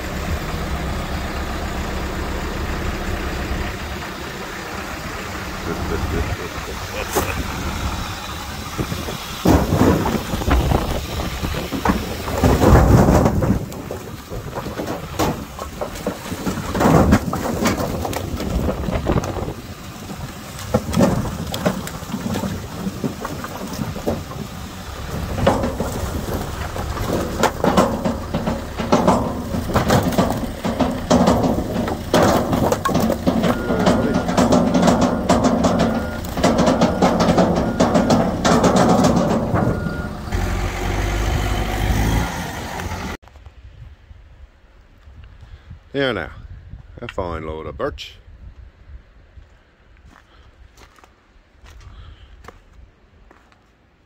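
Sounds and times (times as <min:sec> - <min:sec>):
logs clattering onto metal truck bed: 0:00.0 - 0:43.2.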